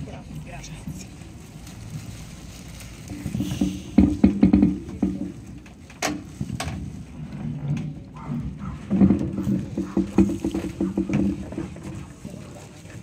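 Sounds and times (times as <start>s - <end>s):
sharp knocks: 3.3s - 5.4s.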